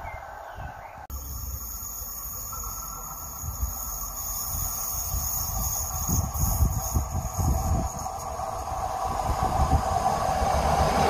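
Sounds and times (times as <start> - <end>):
distant train approaching: 0.0 - 11.0
low wind rumble: 0.0 - 11.0
crickets chirring: 1.1 - 9.2.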